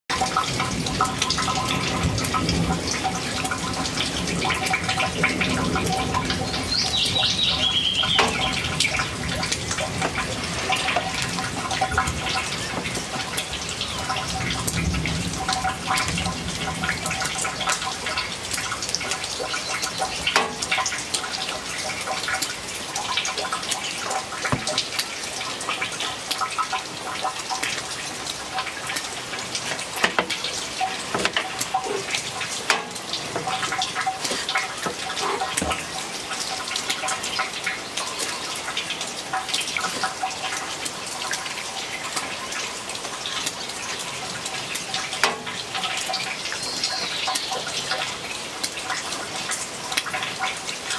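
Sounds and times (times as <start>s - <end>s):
steady rain with dripping: 0.1s - 50.9s
bird call: 6.6s - 8.7s.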